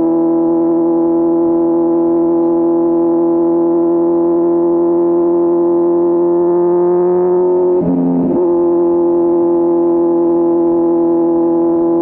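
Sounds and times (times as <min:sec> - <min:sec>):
motorcycle engine running: 0:00.0 - 0:12.0.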